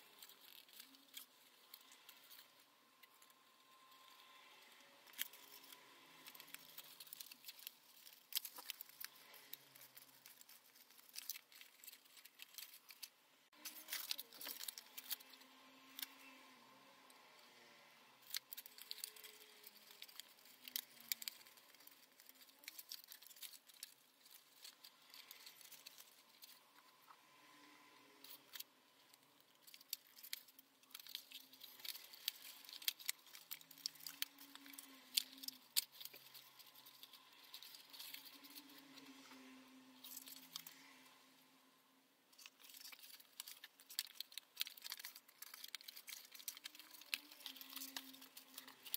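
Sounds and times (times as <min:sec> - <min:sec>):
paper rustling and crinkling: 0:05.0 - 0:16.2, 0:18.2 - 0:27.1, 0:28.2 - 0:40.9, 0:42.4 - 0:48.9.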